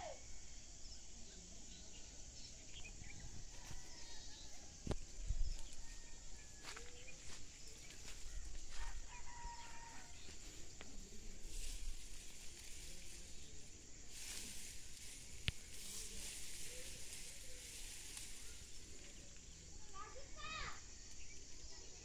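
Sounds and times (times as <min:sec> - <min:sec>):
steady outdoor hiss: 0:00.0 - 0:22.0
distant rooster crowing: 0:03.4 - 0:04.8, 0:05.5 - 0:10.7.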